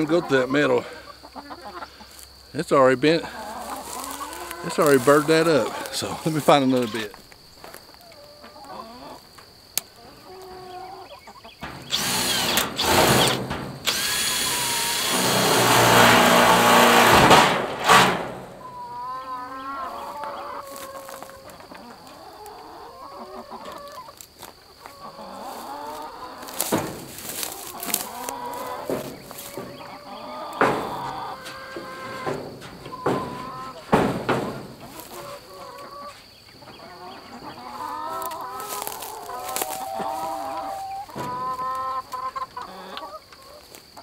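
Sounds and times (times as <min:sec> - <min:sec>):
hens clucking: 0:00.0 - 0:44.0
cordless drill running: 0:11.9 - 0:17.1.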